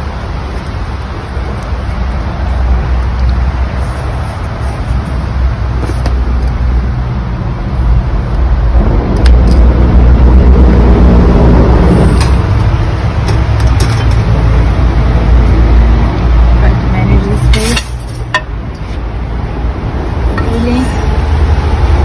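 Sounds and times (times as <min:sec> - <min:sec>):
loud low rumble: 0:06.6 - 0:17.4.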